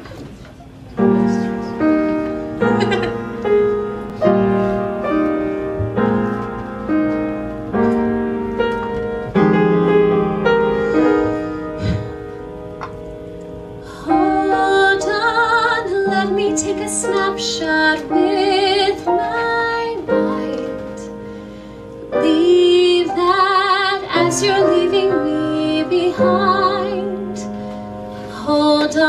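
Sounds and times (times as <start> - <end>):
solo piano chords: 0.0 - 29.0
woman singing: 13.9 - 21.1, 22.1 - 27.5, 28.3 - 29.0.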